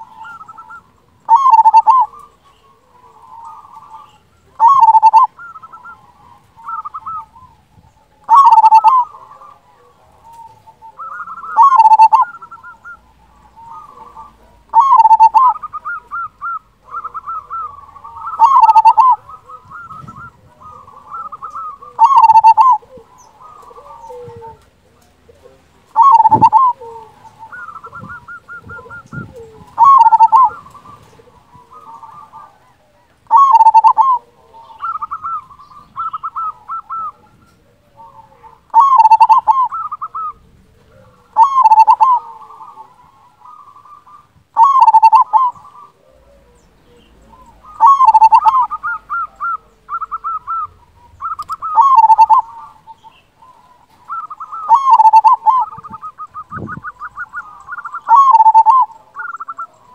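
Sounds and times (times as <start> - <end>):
dove cooing loudly: 0.0 - 59.9
soft rapid cooing notes: 8.3 - 10.6, 11.5 - 12.5, 13.8 - 15.6, 16.8 - 35.6, 44.6 - 52.9, 54.4 - 59.9.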